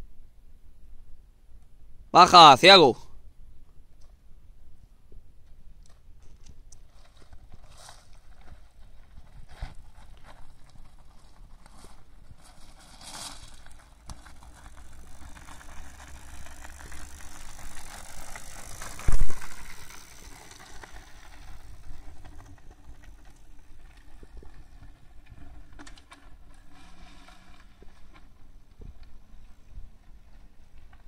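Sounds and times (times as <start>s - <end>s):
gravel crunching and rattling: 4.8s - 31.0s.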